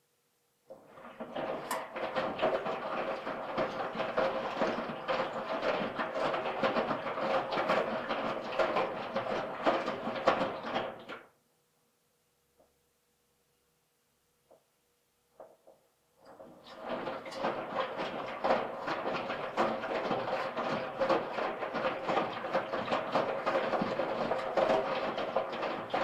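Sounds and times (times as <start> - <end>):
washing machine rattling and sloshing: 0.7 - 11.2, 16.3 - 26.0.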